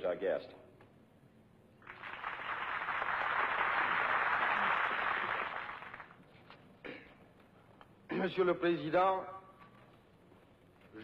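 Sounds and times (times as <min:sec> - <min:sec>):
crowd applauding: 0:01.8 - 0:06.2.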